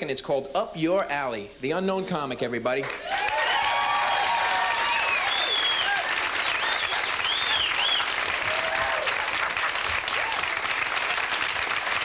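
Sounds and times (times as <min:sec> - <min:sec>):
audience applauding: 0:02.8 - 0:12.0
whistles and whoops: 0:03.0 - 0:09.3.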